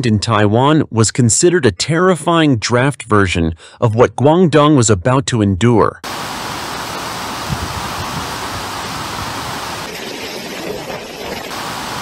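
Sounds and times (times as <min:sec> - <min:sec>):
surf rushing over beach: 0:06.0 - 0:12.0
strong wind: 0:06.1 - 0:12.0.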